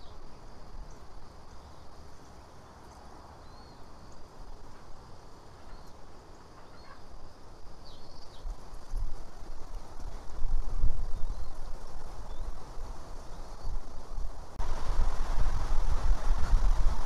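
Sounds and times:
faint high bird chirps: 0:03.4 - 0:03.9, 0:05.6 - 0:07.1
wind rumble on microphone: 0:07.6 - 0:17.0.

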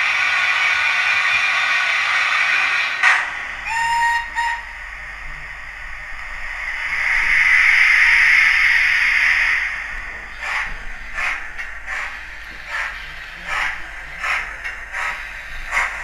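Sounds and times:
steam hiss: 0:00.0 - 0:16.0
model locomotive whistle: 0:03.6 - 0:04.8.

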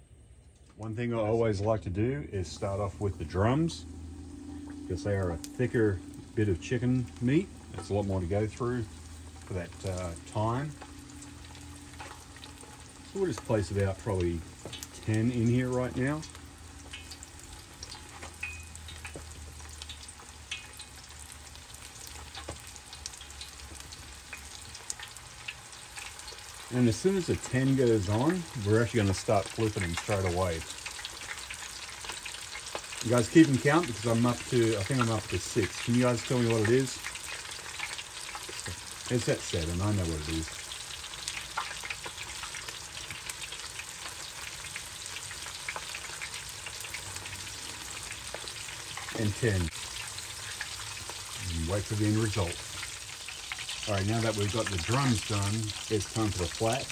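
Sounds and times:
chicken deep-frying in oil: 0:00.0 - 0:56.9.

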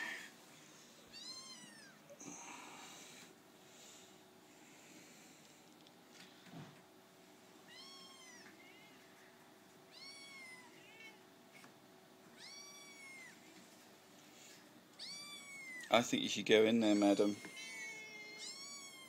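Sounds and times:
kittens mewing: 0:15.0 - 0:16.0, 0:16.8 - 0:19.0.

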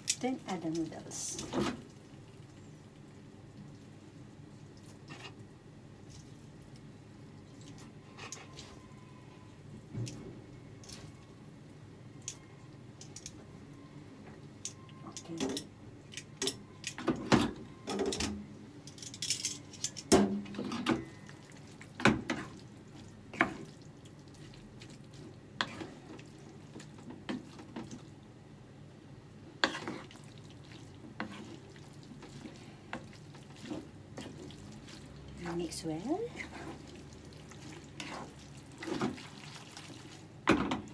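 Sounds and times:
wooden spatula scraping frying pan: 0:25.6 - 0:26.2, 0:29.6 - 0:30.2, 0:31.1 - 0:35.1, 0:36.3 - 0:37.0, 0:37.6 - 0:39.3.

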